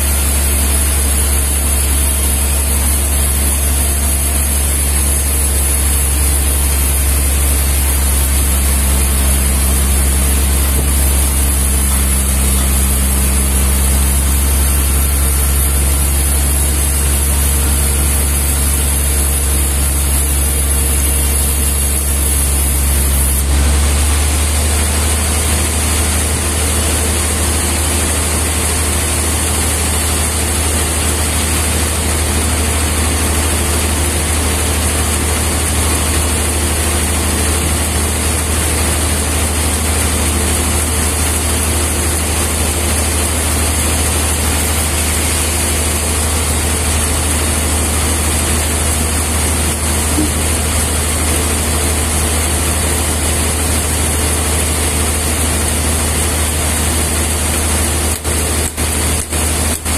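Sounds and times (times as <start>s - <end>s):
band sawmill droning: 0.0s - 59.9s.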